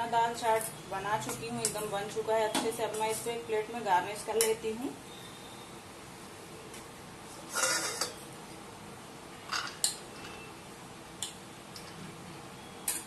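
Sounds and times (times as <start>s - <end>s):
spoon scraping steel bowl: 7.5s - 8.2s.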